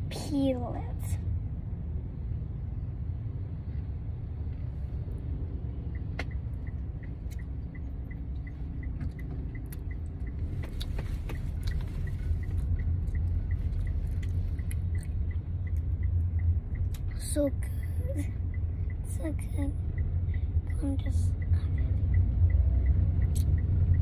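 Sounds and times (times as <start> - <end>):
car cabin rumble: 3.8 - 24.0
high ticking: 5.8 - 24.0.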